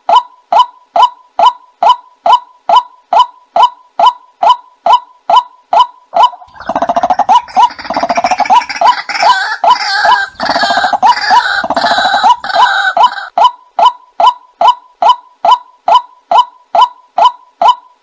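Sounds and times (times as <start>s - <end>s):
croaking and chattering bird calls: 0.0s - 18.0s.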